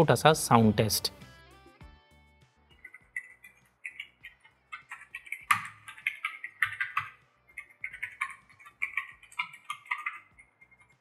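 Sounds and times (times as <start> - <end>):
keyboard typing clacks: 2.8 - 11.0.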